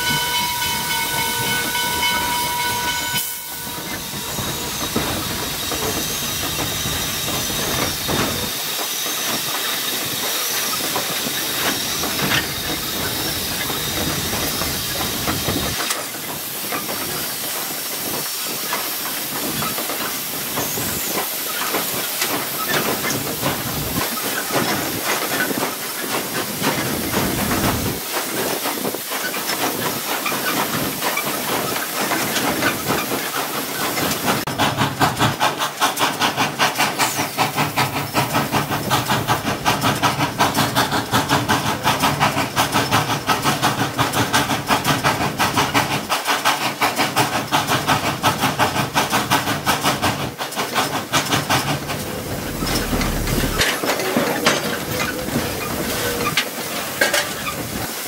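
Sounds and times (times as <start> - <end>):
steam hissing: 0.0 - 58.0
locomotive exhaust chuffs: 48.4 - 57.9.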